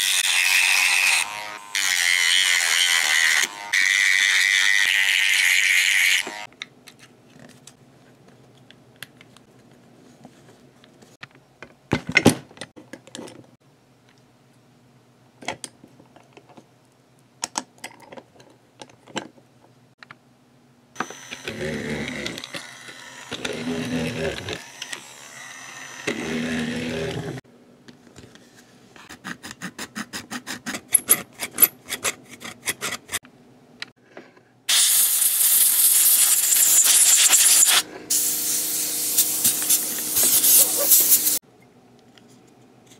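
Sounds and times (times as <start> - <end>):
plastic parts clicking and knocking: 17.4 - 19.4.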